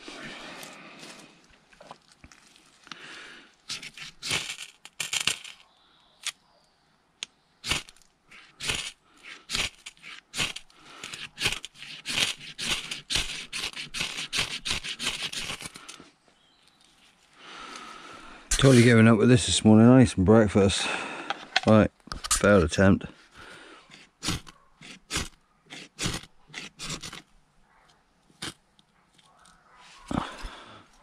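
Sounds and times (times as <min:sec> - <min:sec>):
knife scraping ferro rod: 0:03.7 - 0:05.6, 0:07.6 - 0:16.0, 0:23.8 - 0:27.3.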